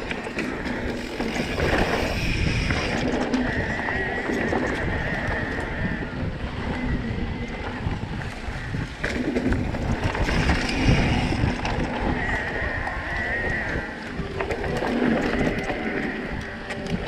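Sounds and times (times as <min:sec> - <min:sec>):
tyres rumbling and rattling: 0:00.0 - 0:17.0
wind buffeting microphone: 0:00.0 - 0:17.0.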